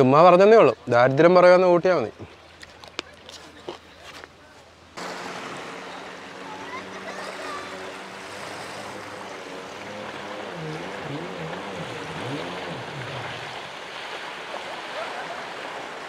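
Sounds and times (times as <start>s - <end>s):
jet ski engine: 5.0s - 16.0s
surf and spray: 5.0s - 16.0s.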